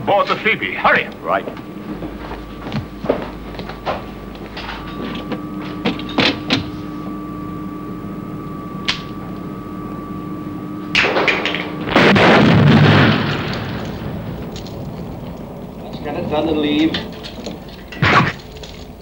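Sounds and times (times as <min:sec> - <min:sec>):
steady humming tone: 0:00.0 - 0:19.0
loud blast with deep rumble: 0:10.9 - 0:17.2.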